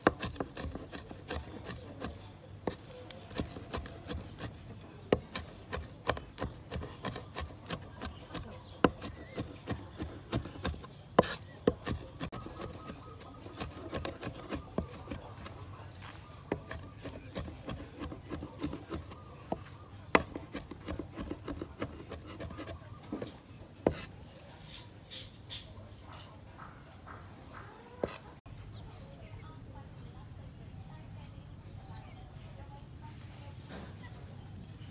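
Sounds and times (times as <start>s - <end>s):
blade scraping across board: 0.0s - 12.8s, 13.4s - 24.2s, 28.0s - 28.3s
cleaver chopping on wooden board: 0.0s - 15.5s, 16.5s - 24.1s.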